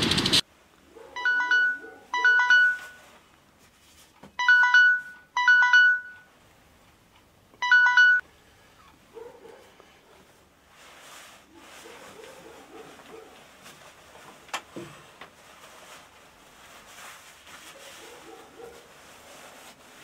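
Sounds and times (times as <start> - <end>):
phone beeping melody: 1.2 - 3.1, 4.4 - 6.3, 7.6 - 8.2.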